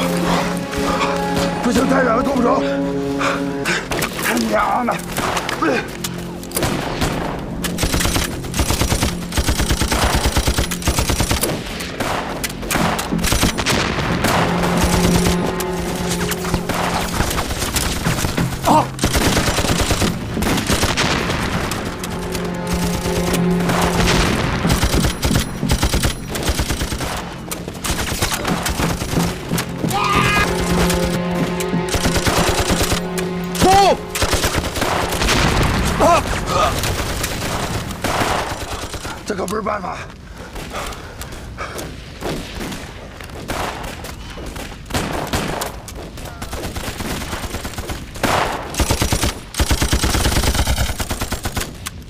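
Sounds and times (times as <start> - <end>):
low music score: 0.0 - 38.7
machine-gun and rifle fire: 7.8 - 15.3, 17.4 - 21.8, 24.1 - 29.2, 46.6 - 51.8.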